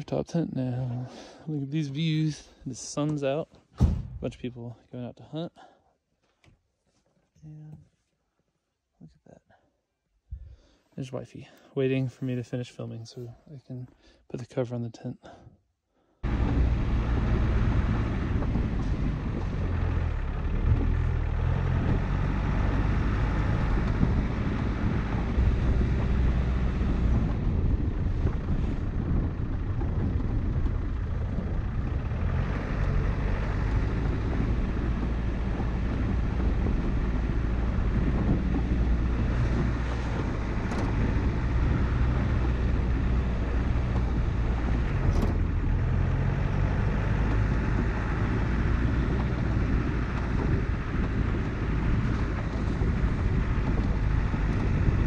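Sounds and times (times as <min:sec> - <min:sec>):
sharp knocks: 0:03.8 - 0:04.4
diesel engine running: 0:16.2 - 0:55.0
wind noise on microphone: 0:16.2 - 0:55.0.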